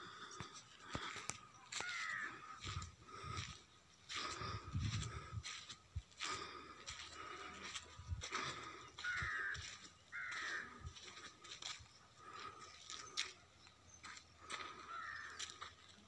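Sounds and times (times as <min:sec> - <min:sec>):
footsteps on dry soil: 0:00.0 - 0:16.0
crow cawing: 0:01.7 - 0:02.8, 0:08.3 - 0:13.4, 0:14.4 - 0:15.8.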